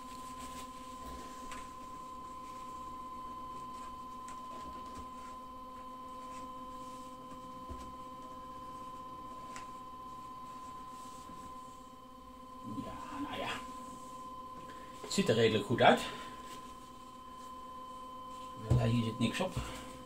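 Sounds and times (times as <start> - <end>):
tissue rustling: 0.0 - 12.0
high electronic whine: 0.0 - 20.0.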